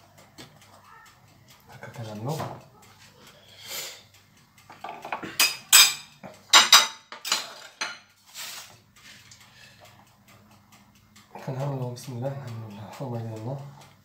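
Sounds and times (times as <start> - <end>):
spoon clinking on metal: 5.4 - 8.1.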